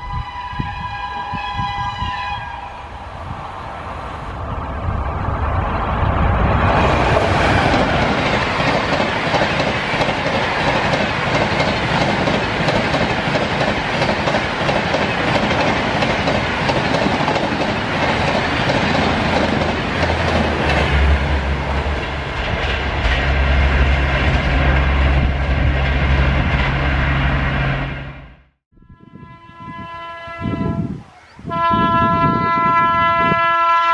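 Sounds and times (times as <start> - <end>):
train wheels rushing on rail: 0.0 - 28.3
clickety-clack over rail joints: 5.9 - 26.9.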